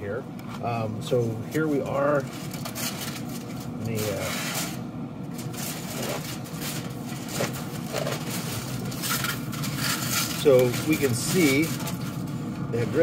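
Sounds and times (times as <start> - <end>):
low mechanical hum: 0.0 - 13.0
aluminium foil crinkling: 0.6 - 13.0.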